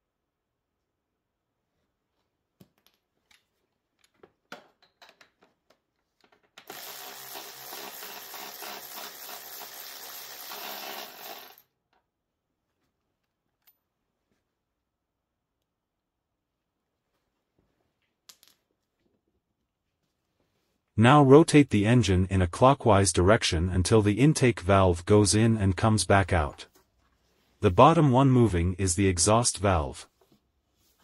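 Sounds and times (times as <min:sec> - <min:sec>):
clicks and knocks of metal parts: 0:02.6 - 0:06.7
handheld power tool running: 0:06.6 - 0:11.6.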